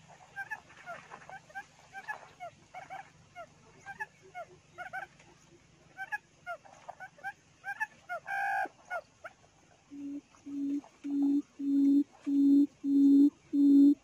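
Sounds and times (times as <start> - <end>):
quail hooting: 7.0 - 9.0, 9.9 - 14.0
small bird chirps: 9.9 - 14.0.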